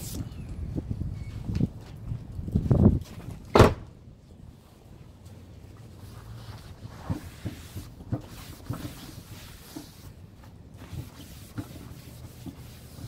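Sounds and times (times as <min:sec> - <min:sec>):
paper towel scrubbing wood: 0:10.8 - 0:13.0.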